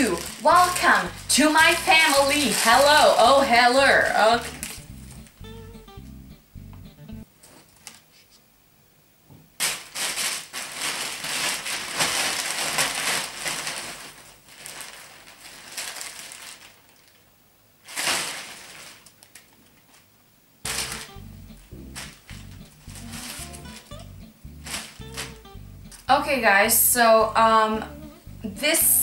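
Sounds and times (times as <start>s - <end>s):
plastic mailer bag crinkling: 0.0s - 5.3s, 9.6s - 20.1s, 20.7s - 26.2s.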